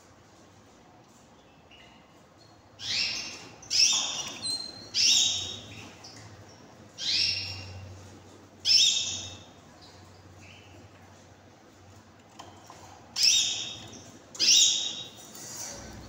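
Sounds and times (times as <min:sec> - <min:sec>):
canaries calling: 0:02.8 - 0:10.8, 0:13.2 - 0:15.2.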